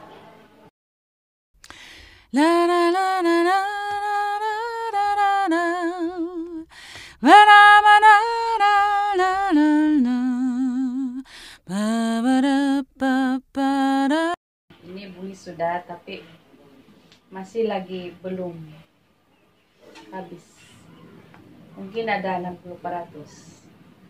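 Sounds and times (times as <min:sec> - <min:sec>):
woman singing unaccompanied: 0:02.3 - 0:14.4.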